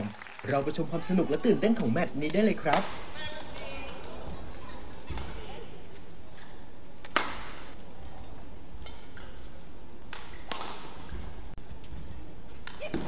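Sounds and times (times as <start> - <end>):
rackets hitting shuttlecock: 2.2 - 4.1, 6.4 - 11.4, 12.6 - 13.0.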